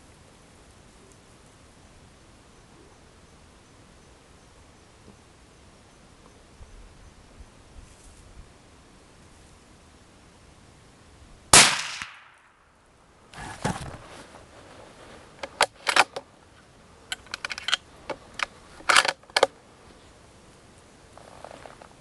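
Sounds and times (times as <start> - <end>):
rustling: 7.7 - 8.4, 13.3 - 22.0
rifle shot: 11.5 - 12.6.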